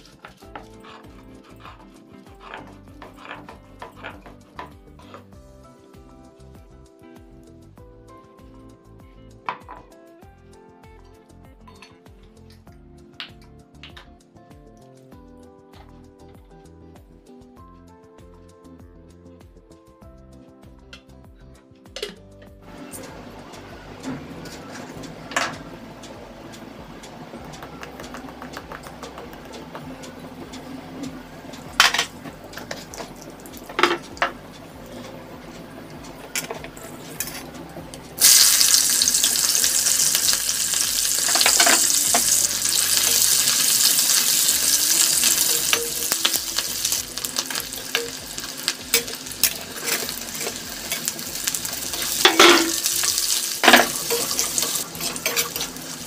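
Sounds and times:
metal spatula scraping a pan: 0.0 - 5.3, 31.8 - 56.0
vegetables sizzling in hot oil: 22.6 - 56.0.

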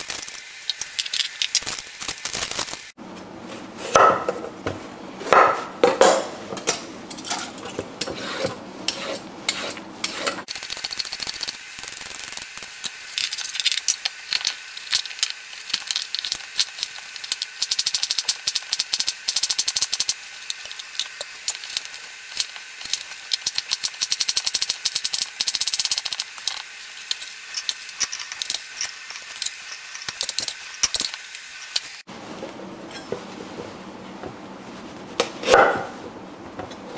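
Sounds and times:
knife chopping on wooden board: 3.9 - 4.5, 5.2 - 6.4, 35.2 - 36.0.

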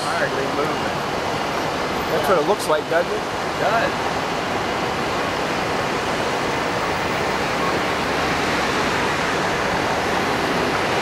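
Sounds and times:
jet engines roaring: 3.3 - 11.0.

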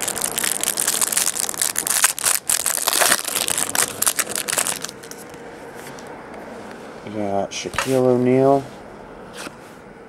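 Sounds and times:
plastic wrapper crinkling: 0.0 - 5.3.

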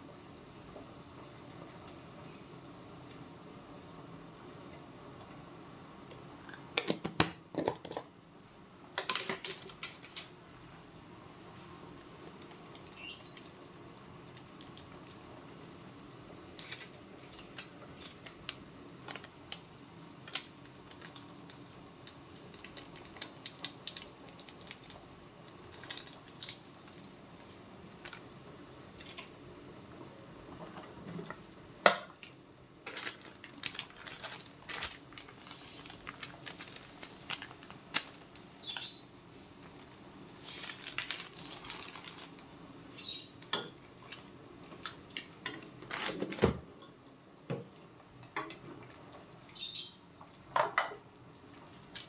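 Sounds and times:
broth simmering in pot: 0.0 - 38.6, 39.2 - 45.8
small ticks and pops: 17.4 - 27.2.

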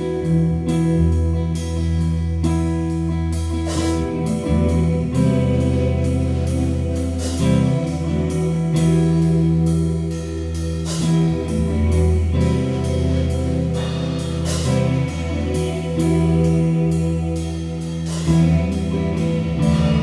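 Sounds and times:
live rock band playing: 0.0 - 20.0.

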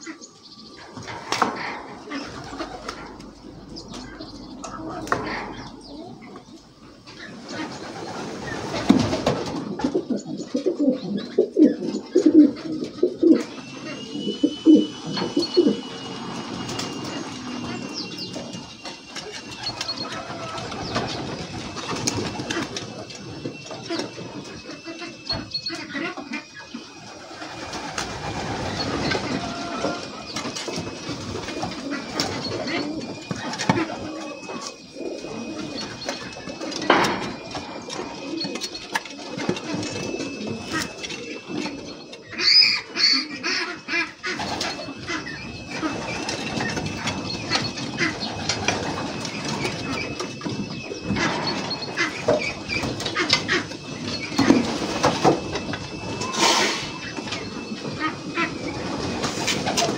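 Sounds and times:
pigeons cooing: 0.0 - 59.9
faint steady high tone: 11.8 - 59.9
pigeon wings flapping: 27.2 - 34.4.

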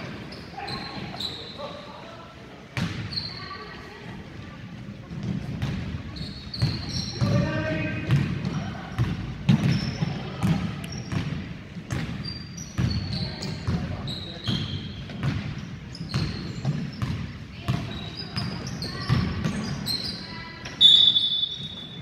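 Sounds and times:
sneakers squeaking: 0.0 - 22.0
basketball bouncing on wooden floor: 5.1 - 6.0, 6.6 - 13.9, 14.5 - 19.7.

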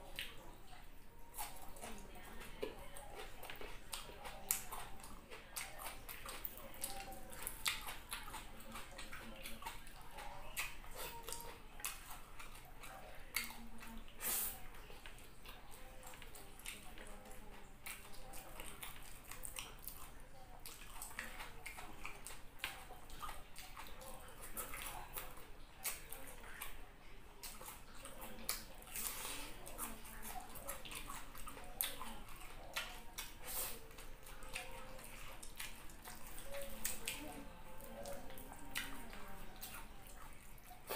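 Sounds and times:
wet chewing and lip-smacking: 0.0 - 40.9.

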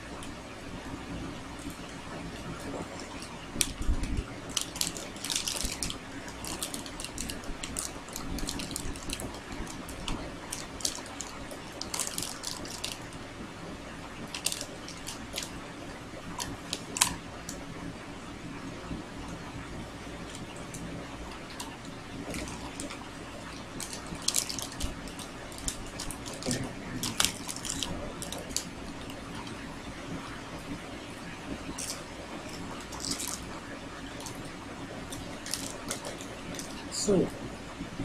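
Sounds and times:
low background hum: 0.0 - 38.0
plastic wrapper crinkling: 2.5 - 13.2, 14.2 - 15.6, 16.3 - 17.6, 21.4 - 29.6, 31.7 - 34.4, 35.1 - 36.9.

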